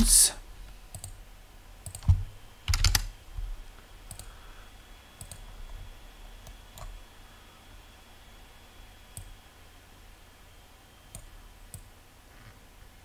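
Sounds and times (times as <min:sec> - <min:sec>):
computer mouse clicks: 0:00.9 - 0:01.2, 0:01.8 - 0:03.1, 0:04.0 - 0:04.4, 0:05.2 - 0:05.5, 0:06.4 - 0:07.0, 0:11.1 - 0:11.9
keyboard key presses: 0:01.8 - 0:03.1.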